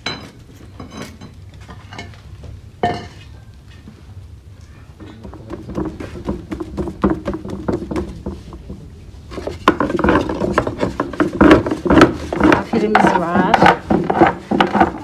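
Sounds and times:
rolling pin knocking on wooden board: 0:05.2 - 0:15.0.

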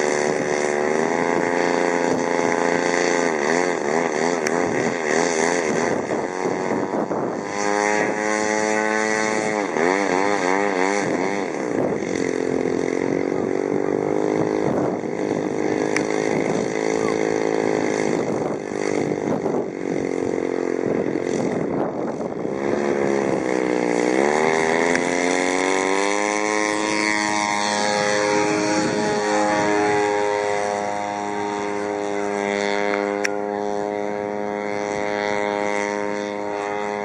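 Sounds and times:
model plane engine running: 0:00.0 - 0:37.0.

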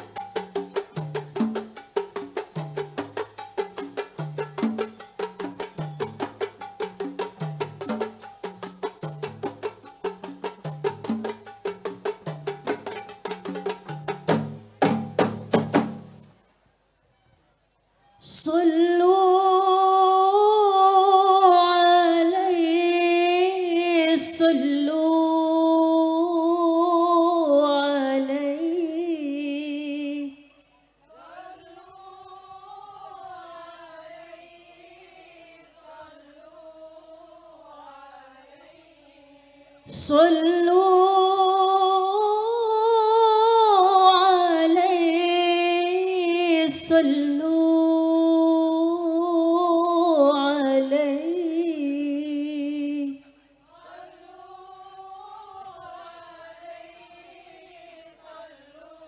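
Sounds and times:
woman singing unaccompanied: 0:18.2 - 0:59.0.

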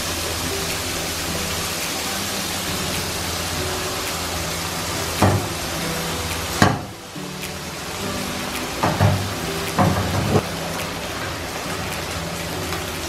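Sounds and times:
oil sizzling in frying pan: 0:00.0 - 0:13.0
sharp knocks: 0:05.2 - 0:05.6, 0:06.3 - 0:07.6, 0:08.5 - 0:10.4.

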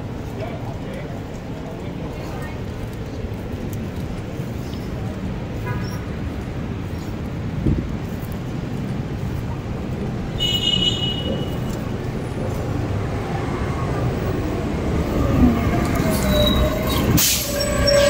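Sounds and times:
wind and road noise: 0:00.0 - 0:18.0
high-pitched squeal: 0:15.0 - 0:18.0.

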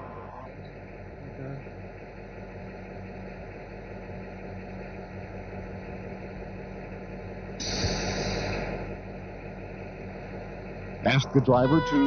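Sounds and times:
diesel engine idling: 0:00.0 - 0:12.0
loud air hiss: 0:07.6 - 0:08.6.

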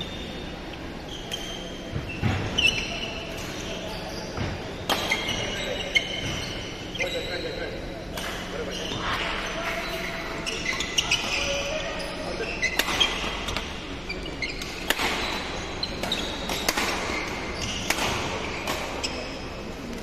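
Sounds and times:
shoes squeaking on court floor: 0:00.0 - 0:20.0
racket hitting shuttlecock: 0:04.8 - 0:05.4, 0:12.6 - 0:13.7, 0:14.6 - 0:19.1.

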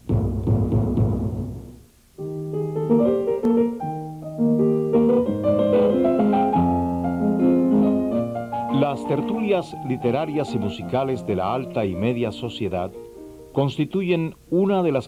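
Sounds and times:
drum roll: 0:00.0 - 0:01.9
solo piano melody: 0:02.2 - 0:14.0.

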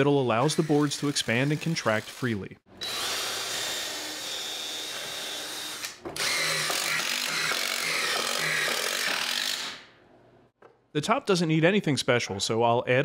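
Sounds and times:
cordless drill boring into wood: 0:00.4 - 0:02.2, 0:02.8 - 0:09.8.

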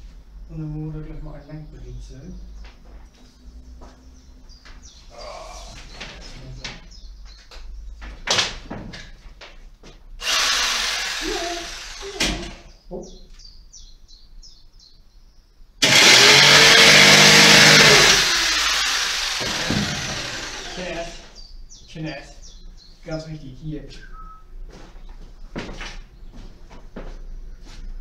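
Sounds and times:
electric saw cutting wood: 0:10.2 - 0:12.6, 0:15.8 - 0:21.4.

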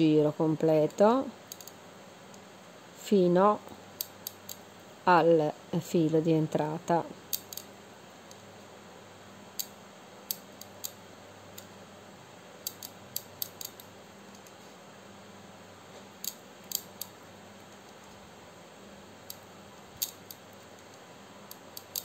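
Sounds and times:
faint steady hum: 0:00.0 - 0:22.0
crochet hook clicking: 0:10.3 - 0:11.0, 0:12.6 - 0:13.9, 0:16.2 - 0:17.2, 0:21.5 - 0:22.0.

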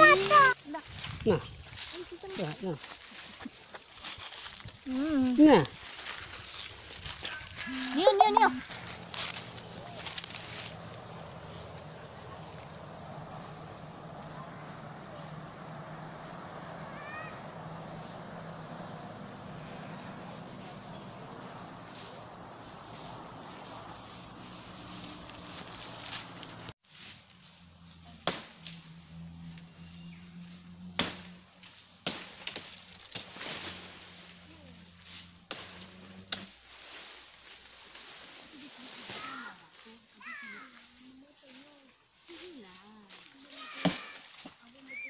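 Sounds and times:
insect buzzing: 0:00.0 - 0:45.0
blade chopping palm stem: 0:28.2 - 0:28.6, 0:31.0 - 0:31.3, 0:32.0 - 0:33.6.

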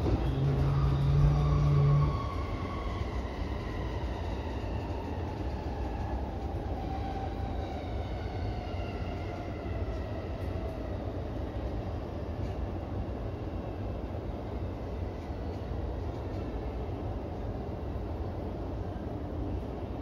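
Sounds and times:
electric train motors whining: 0:00.0 - 0:05.0.

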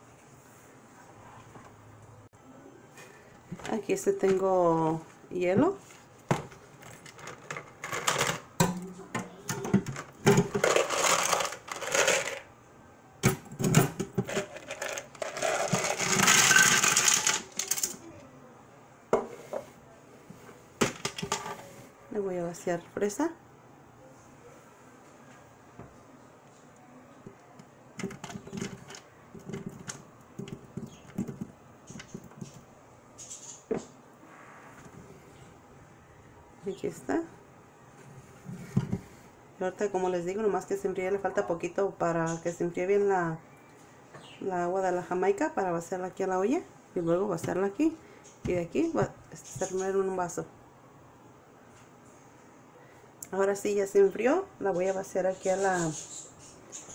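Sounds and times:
ice clattering into plastic pitcher: 0:06.9 - 0:08.8, 0:09.5 - 0:12.5, 0:13.6 - 0:18.0.

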